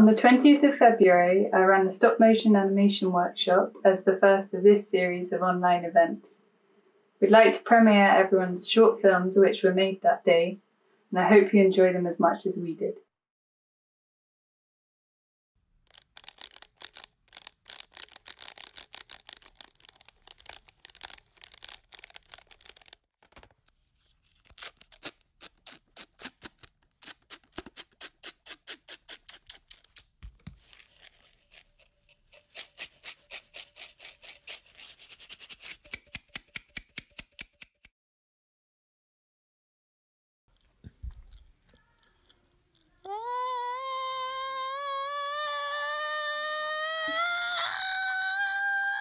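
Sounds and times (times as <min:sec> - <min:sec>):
fast rattling clicks: 0:15.9 - 0:23.0.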